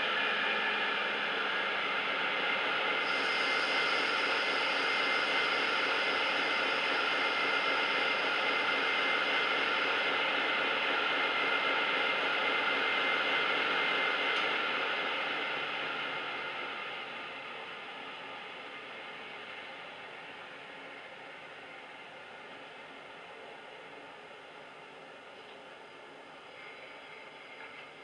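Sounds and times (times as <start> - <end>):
diesel locomotive engine sound: 0.0 - 28.0.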